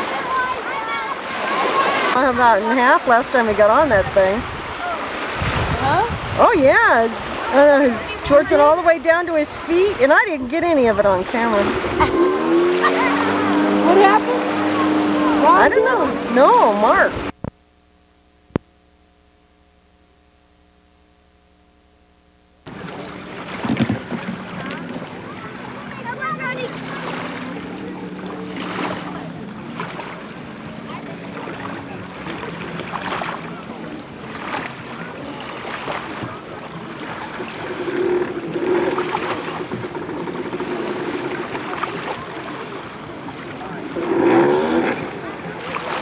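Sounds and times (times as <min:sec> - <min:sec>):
wind: 0:00.0 - 0:22.0, 0:22.6 - 0:46.0
jet ski engine droning: 0:00.0 - 0:46.0
water noise: 0:00.0 - 0:46.0
wind buffeting microphone: 0:01.5 - 0:17.5.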